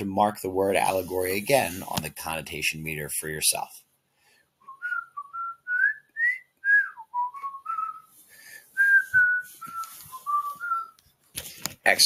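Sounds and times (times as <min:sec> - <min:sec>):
person whistling a tune: 0:04.6 - 0:11.0.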